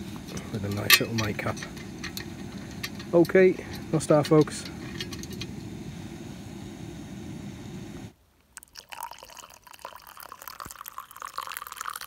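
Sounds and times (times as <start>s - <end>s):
gas stove burning: 0.0s - 8.2s
water pouring into mug: 8.6s - 12.0s.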